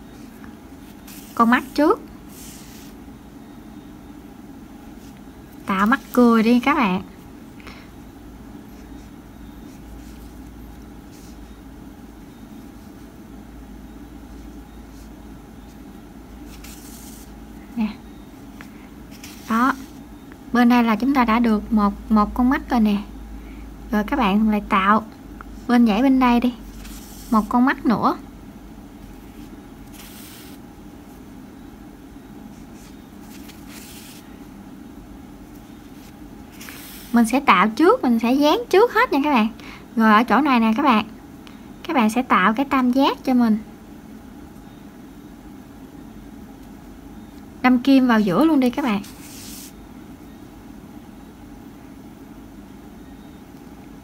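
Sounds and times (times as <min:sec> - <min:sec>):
soft rustles of yarn: 0:00.0 - 0:03.1, 0:04.8 - 0:06.8, 0:14.2 - 0:20.2, 0:25.6 - 0:27.9, 0:29.0 - 0:31.3, 0:32.5 - 0:34.5, 0:35.4 - 0:37.5, 0:48.2 - 0:49.8
low background hum: 0:00.0 - 0:54.0.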